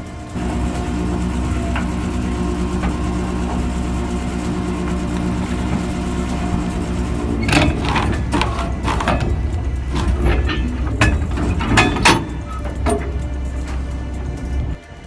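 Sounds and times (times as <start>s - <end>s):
boat machinery droning: 0.0s - 15.0s
anchor clanking: 4.4s - 14.7s.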